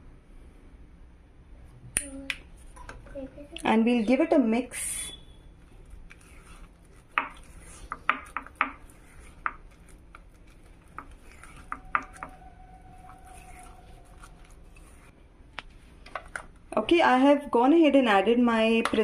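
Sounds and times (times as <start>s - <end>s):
spatula scraping glass bowl: 4.9s - 15.2s
soft sticky squish: 5.4s - 16.6s.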